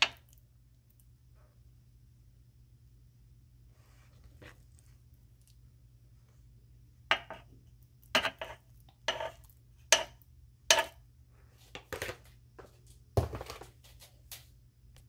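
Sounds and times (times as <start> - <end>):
utensil clinking on metal pan: 8.2 - 11.0
utensil scraping: 8.2 - 11.0.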